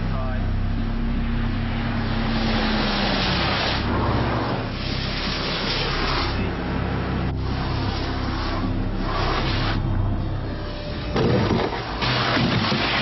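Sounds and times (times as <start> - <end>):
low engine noise: 0.0 - 13.0
tyre spray hiss on wet road: 2.2 - 6.5.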